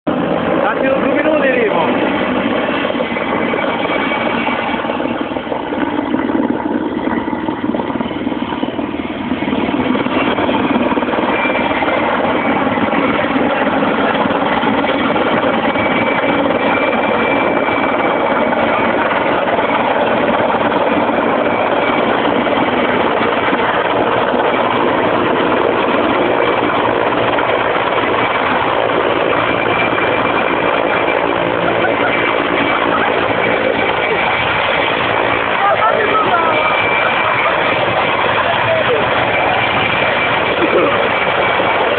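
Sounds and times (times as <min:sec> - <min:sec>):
helicopter turbine whine and rotor: 0:00.0 - 0:41.9.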